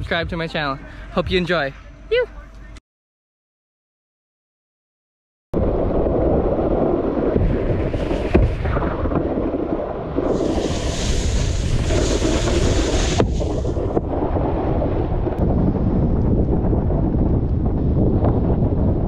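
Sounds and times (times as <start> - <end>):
wind buffeting microphone: 5.6 - 19.0
rushing water and spray: 7.2 - 14.1.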